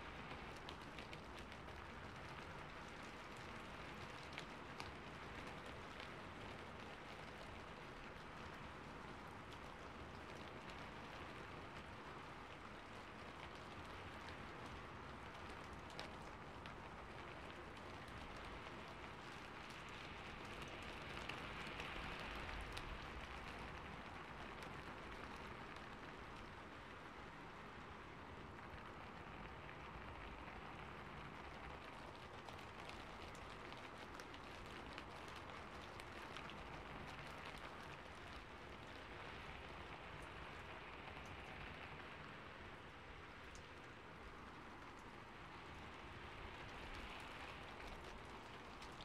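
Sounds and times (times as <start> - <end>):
steady rainfall: 0.0 - 49.0.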